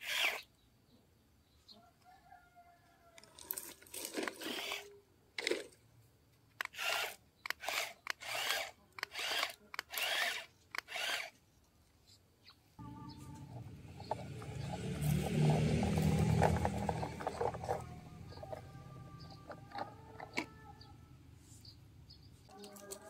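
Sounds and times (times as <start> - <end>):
toy electric motors whirring: 0.0 - 0.5, 3.2 - 5.7, 6.6 - 11.4, 13.6 - 20.9, 22.5 - 23.0.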